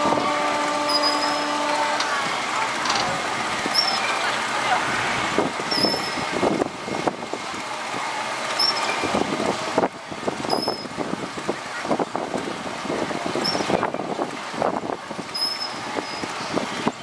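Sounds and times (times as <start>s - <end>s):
ride machinery noise: 0.0s - 17.0s
short high squeak: 0.8s - 1.7s, 3.7s - 4.2s, 5.7s - 6.3s, 8.6s - 9.1s, 10.5s - 10.9s, 13.4s - 13.8s, 15.4s - 16.3s.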